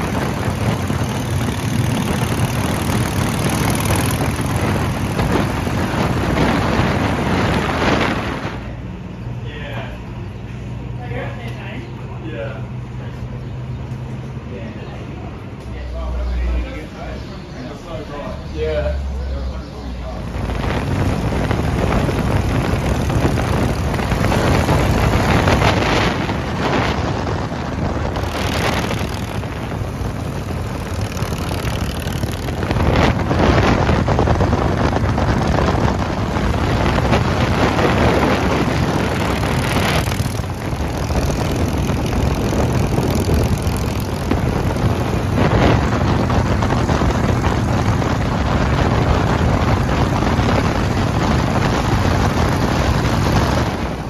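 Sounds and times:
wind buffeting on microphone: 0.0s - 9.3s, 19.9s - 54.0s
motorcycle engines at speed: 0.0s - 54.0s.

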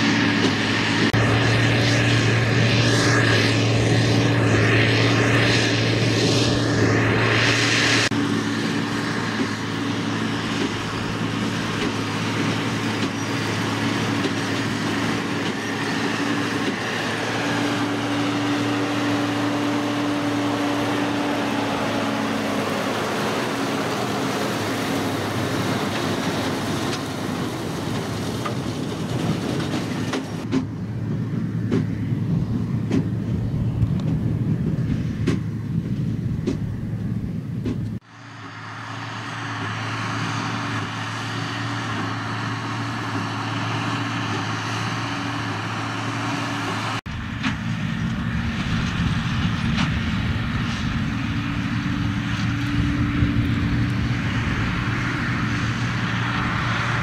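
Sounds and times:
tractor diesel engine under load: 0.0s - 57.0s
baler machinery clanking: 8.2s - 30.9s.

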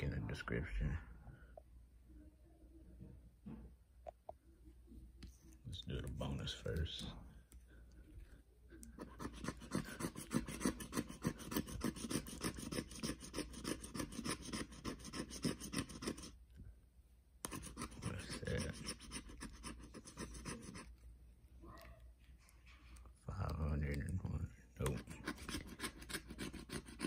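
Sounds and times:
plastic scraper scratching ticket: 9.0s - 16.4s, 17.4s - 20.9s, 24.8s - 27.0s.

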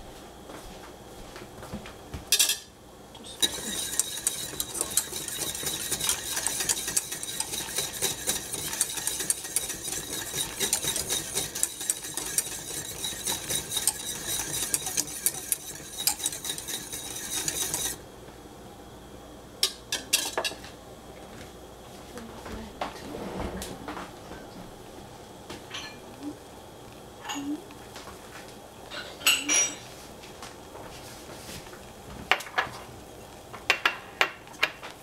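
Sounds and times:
whisk scraping saucepan: 3.2s - 18.0s.

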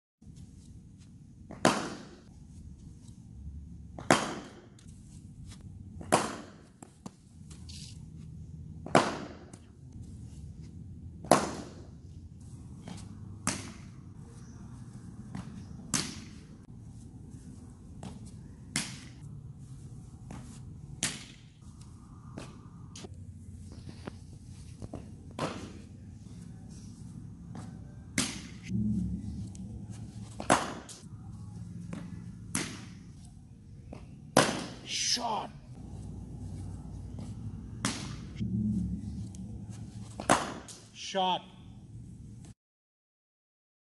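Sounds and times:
cricket bat striking ball: 1.5s - 2.2s, 4.0s - 4.7s, 6.0s - 6.6s, 8.8s - 9.6s, 11.2s - 11.8s, 30.4s - 30.9s, 34.4s - 34.8s, 40.2s - 40.8s.

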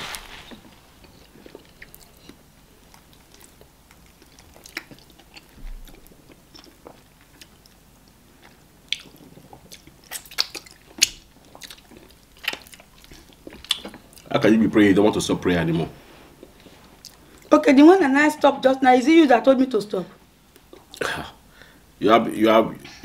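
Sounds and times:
chewing and wet mouth smacks: 1.0s - 14.3s.

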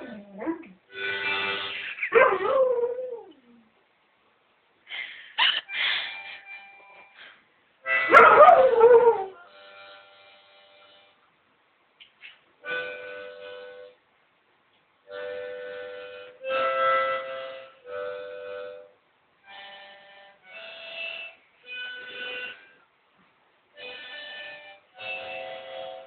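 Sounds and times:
harmonica playing held chords: 0.9s - 2.1s, 5.6s - 8.4s, 9.5s - 11.2s, 12.6s - 14.0s, 15.1s - 22.8s, 23.8s - 26.0s.

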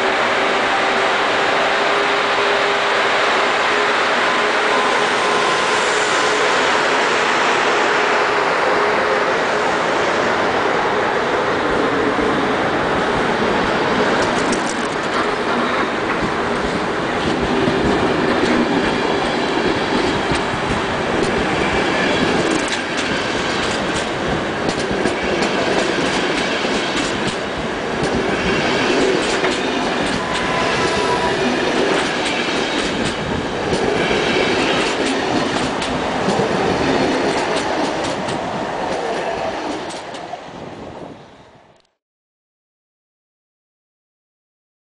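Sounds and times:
train wheels clacking over rails: 13.1s - 40.4s.

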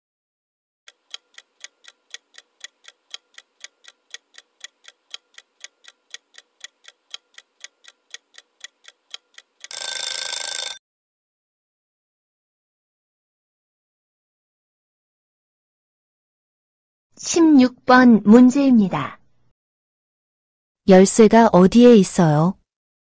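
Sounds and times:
clock ticking timer: 0.9s - 10.8s
timer alarm: 9.6s - 10.8s.

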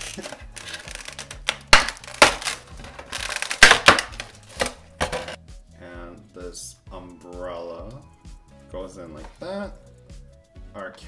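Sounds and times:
sharp plastic snaps: 0.0s - 4.8s
plastic tray crackling: 0.0s - 5.4s.

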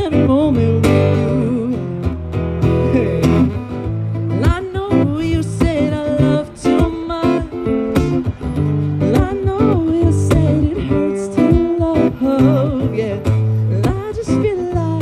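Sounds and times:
acoustic guitar strumming: 0.0s - 15.0s
man singing: 2.8s - 3.8s, 9.0s - 15.0s.

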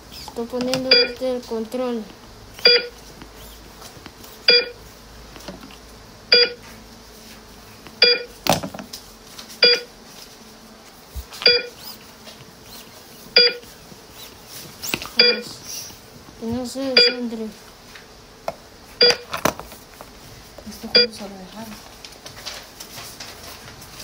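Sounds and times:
electronic monitor beeps: 0.7s - 1.2s, 2.6s - 3.0s, 4.4s - 4.8s, 6.3s - 6.6s, 8.0s - 8.4s, 9.6s - 9.9s, 11.4s - 11.9s, 13.4s - 13.6s, 15.2s - 15.6s, 17.0s - 17.3s, 19.0s - 19.3s, 20.9s - 21.2s.

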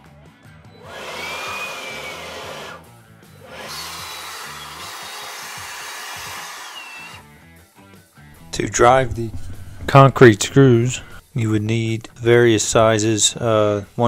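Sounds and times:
cordless blower motor whine: 0.8s - 7.3s.

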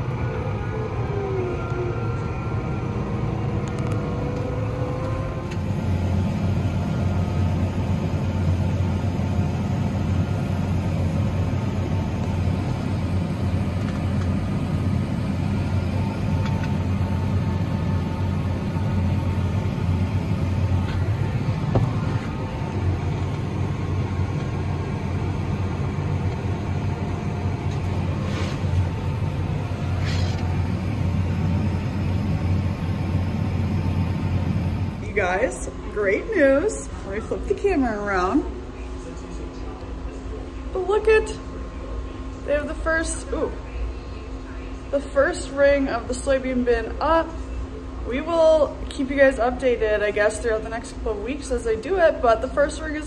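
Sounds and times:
tractor engine running under load: 1.6s - 35.4s.

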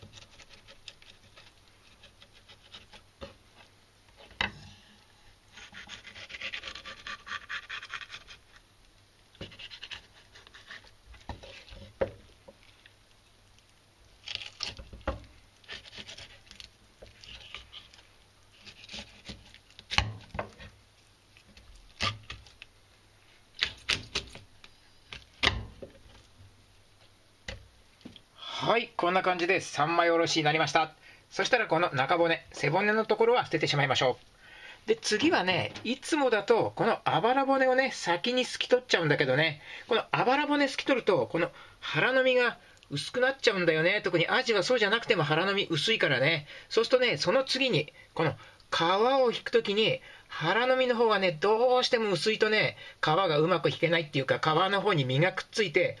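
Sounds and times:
knife scraping along fish bone: 0.0s - 4.3s, 5.5s - 8.6s, 9.4s - 12.0s, 14.2s - 15.0s, 15.6s - 20.8s, 21.4s - 22.6s, 23.6s - 24.4s.

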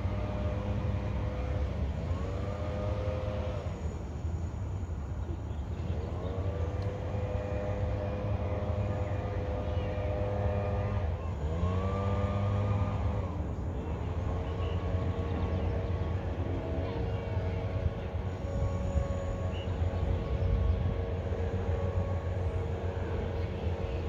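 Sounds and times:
train air horn blasts: 18.3s - 20.0s.

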